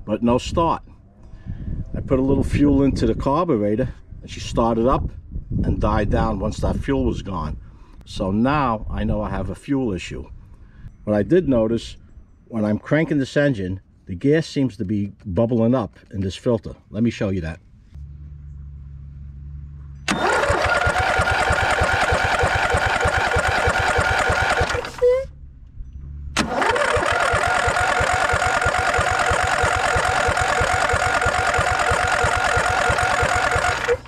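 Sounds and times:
electric starter cranking engine: 0:20.1 - 0:25.2, 0:26.4 - 0:34.0.

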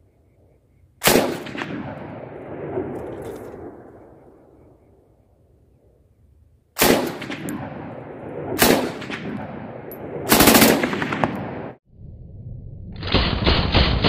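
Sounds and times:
machine gun firing: 0:01.0 - 0:02.2, 0:06.8 - 0:07.9, 0:08.6 - 0:11.8
rolling gunshot echo: 0:01.0 - 0:04.0, 0:06.8 - 0:11.8.

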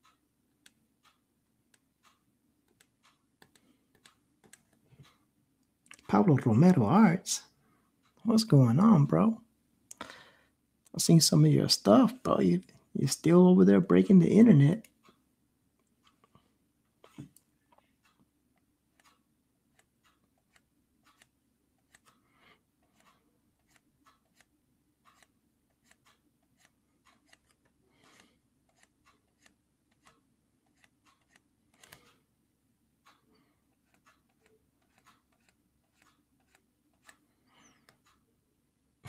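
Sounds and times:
faint clicks and taps: 0:00.0 - 0:06.2, 0:15.8 - 0:32.2, 0:33.0 - 0:38.3.

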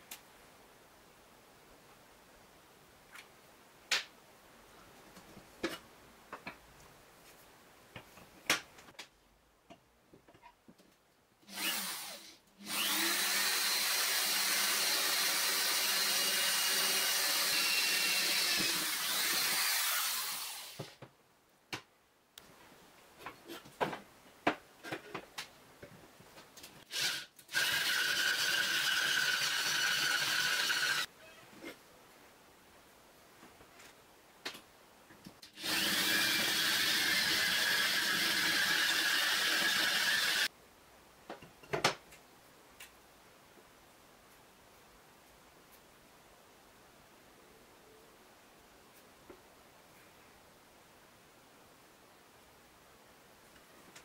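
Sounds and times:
cordless drill boring through steel: 0:11.5 - 0:20.8, 0:26.9 - 0:31.1, 0:35.6 - 0:40.5.

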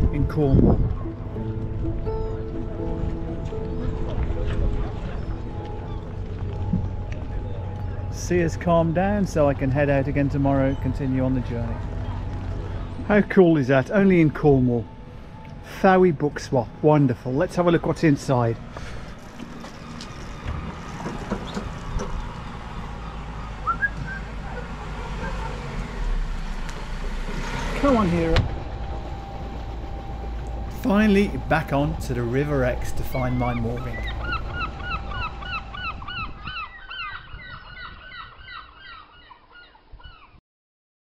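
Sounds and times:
low steady rumble: 0:00.0 - 0:16.0, 0:16.7 - 0:37.8
flock of birds calling: 0:18.8 - 0:25.9, 0:30.4 - 0:40.4
short rising chirp: 0:23.6 - 0:24.4.

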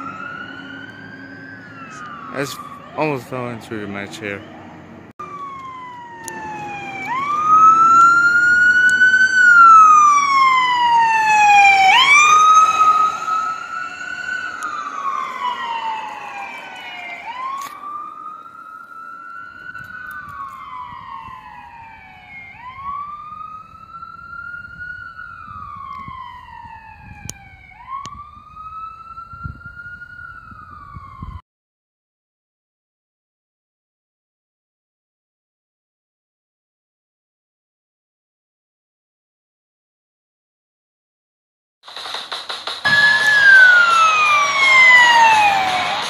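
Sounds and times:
ambulance wail siren: 0:00.0 - 0:31.4, 0:42.8 - 0:46.0.

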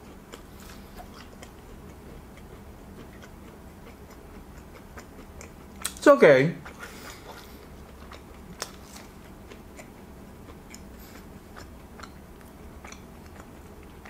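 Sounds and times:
mouth chewing crunchy food: 0:00.0 - 0:14.0.

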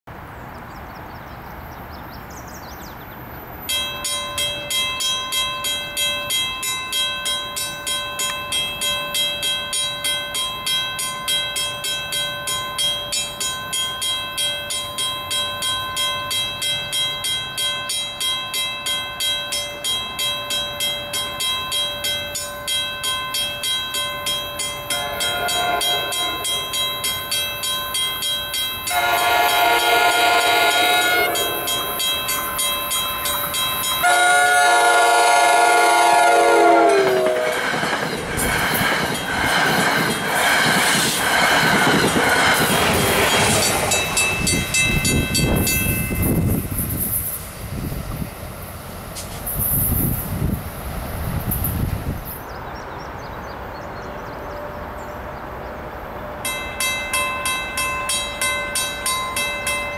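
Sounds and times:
railroad crossing bell ringing: 0:03.6 - 0:48.2, 0:56.0 - 0:59.9
train horn: 0:24.9 - 0:27.2, 0:28.9 - 0:32.0, 0:34.0 - 0:37.8.

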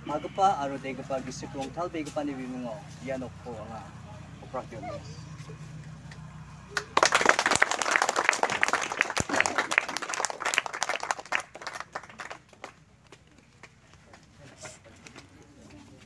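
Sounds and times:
group of people applauding: 0:06.7 - 0:12.8.

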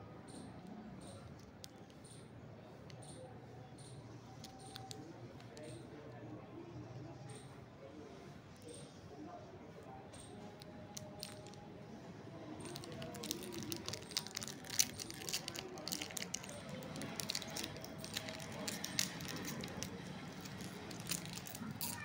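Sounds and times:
plastic wrapper crinkling: 0:10.6 - 0:11.7, 0:12.4 - 0:22.0.

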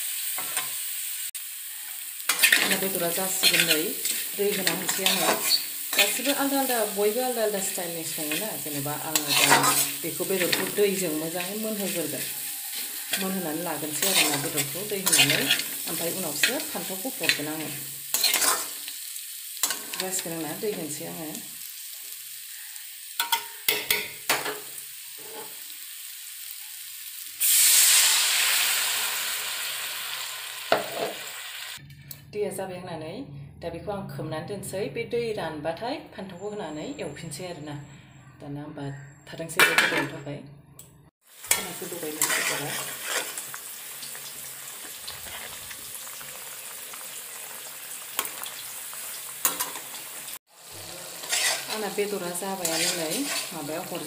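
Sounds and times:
meat frying in a wok: 0:00.0 - 0:31.8, 0:41.2 - 0:54.0
water sizzling in a hot wok: 0:00.0 - 0:31.8, 0:41.2 - 0:54.0
spatula scraping a pan: 0:02.2 - 0:06.6, 0:07.6 - 0:17.4, 0:18.1 - 0:18.9, 0:41.5 - 0:43.6, 0:50.8 - 0:54.0.

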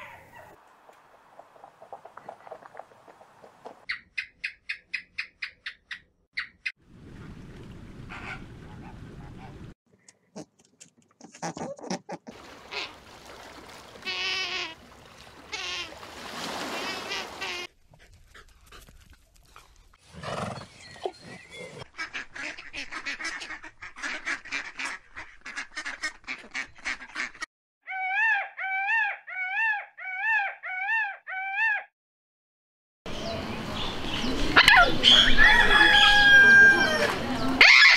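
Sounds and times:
duck quacking: 0:21.9 - 0:27.4
peacock calling: 0:27.9 - 0:31.9.

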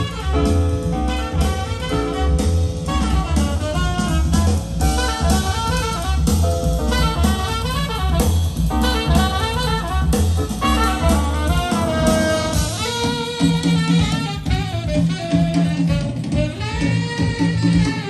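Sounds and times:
jazz with saxophone and drums: 0:00.0 - 0:18.0.

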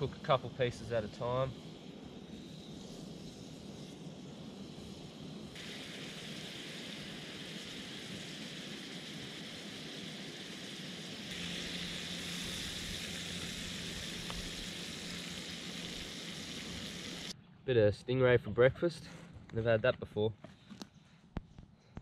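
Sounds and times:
food frying in butter: 0:05.5 - 0:17.3.

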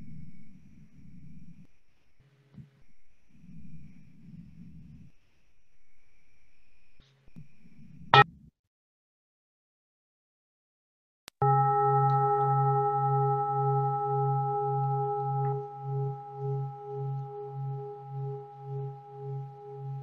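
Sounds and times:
singing bowl ringing: 0:11.4 - 0:20.0.

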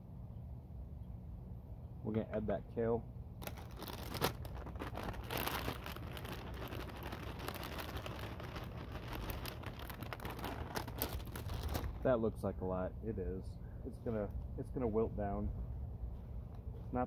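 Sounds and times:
plastic bag crinkling: 0:03.4 - 0:12.1.

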